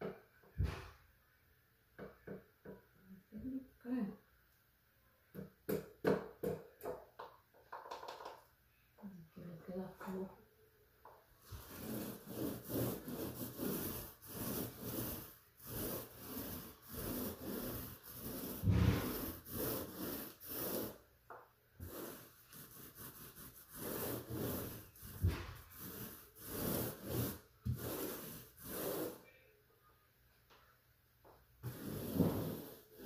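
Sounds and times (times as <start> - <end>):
paint roller rolling on wall: 7.2 - 8.5, 11.0 - 29.3, 31.6 - 33.0.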